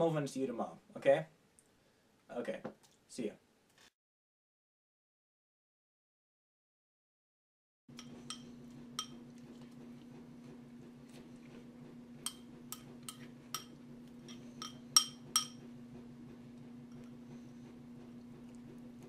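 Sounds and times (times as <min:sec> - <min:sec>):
steady low hum: 0:07.9 - 0:19.0
metal spoon clinking on ceramic bowl: 0:08.0 - 0:09.2, 0:12.3 - 0:15.6.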